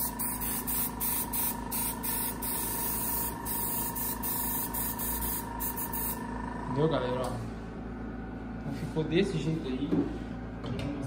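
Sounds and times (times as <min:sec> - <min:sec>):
airbrush air hiss in spurts: 0:00.0 - 0:06.2.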